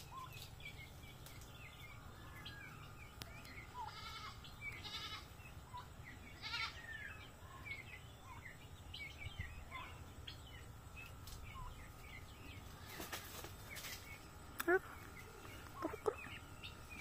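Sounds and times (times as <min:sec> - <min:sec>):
buzzy bleat-like animal calls: 0:03.8 - 0:05.4, 0:06.3 - 0:07.0.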